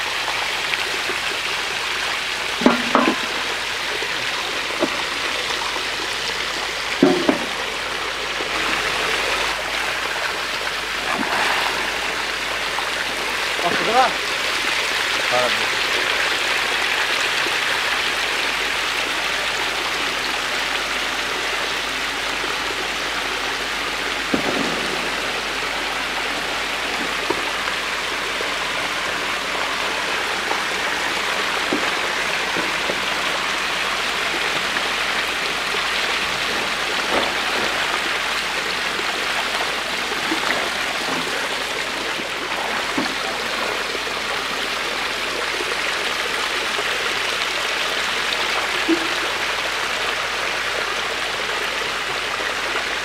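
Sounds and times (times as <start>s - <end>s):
fish splashing in water: 0.9s - 17.8s, 22.7s - 49.8s
sharp splashes or knocks: 2.6s - 3.6s, 7.0s - 7.8s, 11.0s - 14.2s, 24.2s - 28.0s, 28.9s - 43.9s.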